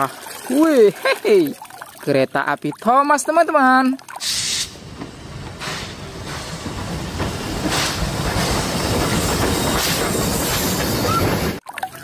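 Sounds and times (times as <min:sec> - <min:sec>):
steam hiss: 0:04.2 - 0:11.5
steam locomotive running: 0:04.4 - 0:11.6.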